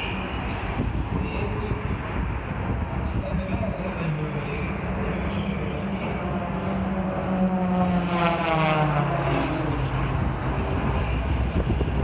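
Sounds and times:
propeller plane flying past: 4.8s - 12.0s.

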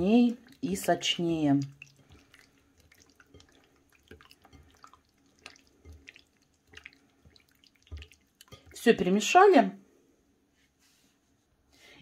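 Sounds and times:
wet squelches of chicken mixing: 0.0s - 9.6s.

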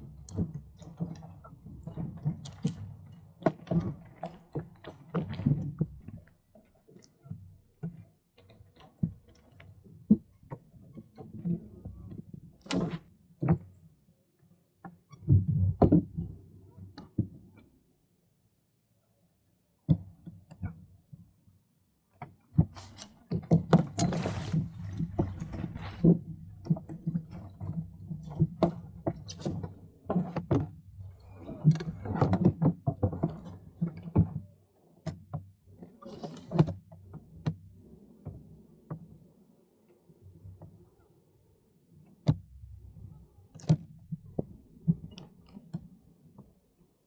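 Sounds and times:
water sloshing against hull: 0.0s - 13.9s, 22.6s - 39.2s.

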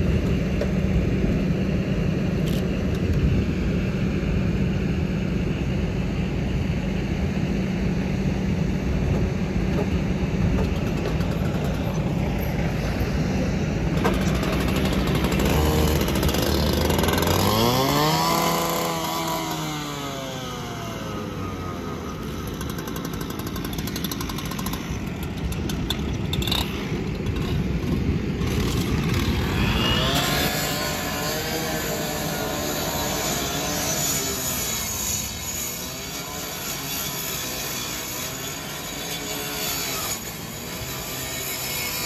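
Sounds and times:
engine drone: 0.0s - 42.0s
rescue saw revving: 10.8s - 42.0s.

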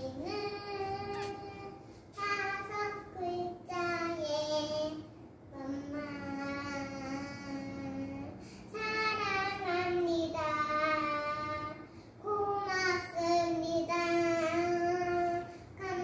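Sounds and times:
girl singing: 0.0s - 16.0s.

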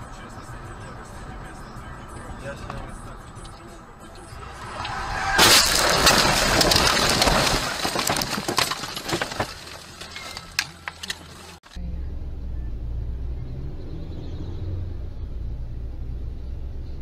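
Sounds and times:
engine and road rumble: 0.0s - 17.0s
branches scraping and snapping on car: 4.4s - 11.7s.

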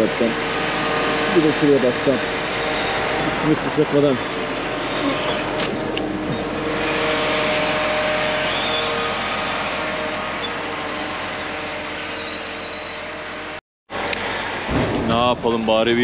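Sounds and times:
truck engine running: 0.0s - 10.7s.

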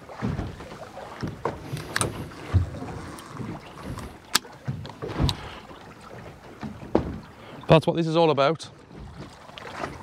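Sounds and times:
water lapping against boat hull: 0.0s - 10.0s.

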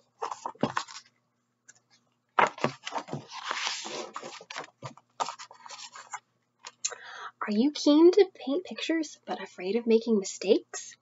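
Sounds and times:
book pages turning: 0.0s - 1.1s, 1.7s - 6.2s
paper crinkling and flapping: 0.1s - 1.1s, 2.4s - 6.2s.

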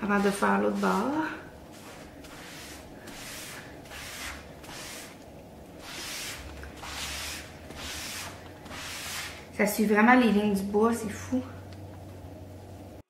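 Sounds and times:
sponge rubbing on wood: 0.0s - 5.2s, 5.8s - 9.5s.

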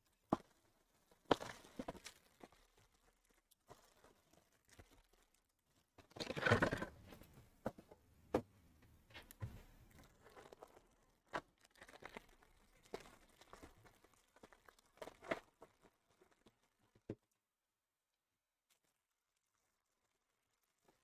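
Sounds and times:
foil wrappers crinkling: 1.2s - 6.2s.

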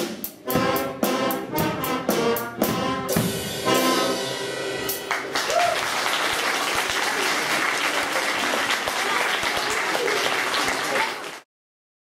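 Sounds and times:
audience applause: 5.1s - 11.5s.

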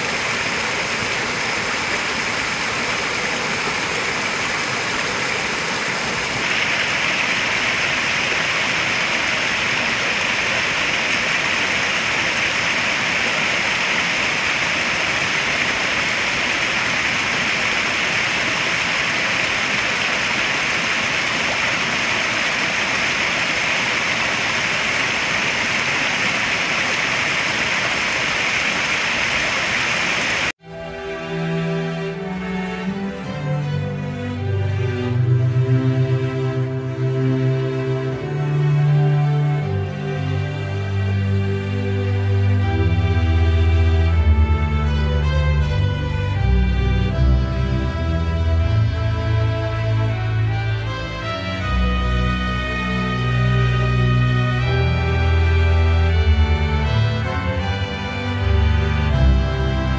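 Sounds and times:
waterfall splashing into pond: 0.0s - 30.6s.

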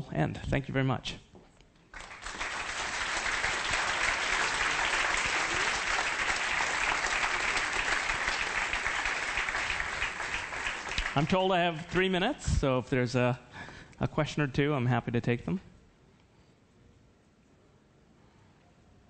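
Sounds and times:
audience applause in a large hall: 1.9s - 12.4s.

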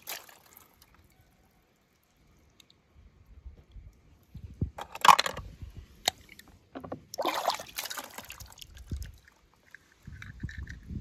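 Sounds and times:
water sloshing and splashing: 0.0s - 1.1s, 6.0s - 10.6s.

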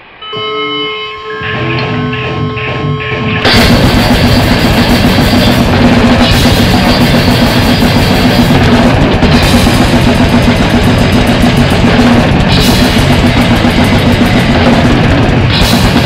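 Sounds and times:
distorted electric guitar: 0.4s - 16.0s
blast beat drums: 1.4s - 16.0s.

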